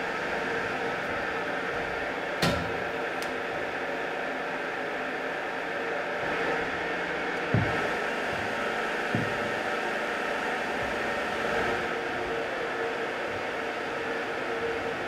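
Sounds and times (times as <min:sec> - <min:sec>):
workshop machinery hiss and hum: 0:00.0 - 0:15.0
dull thumps: 0:07.5 - 0:09.7.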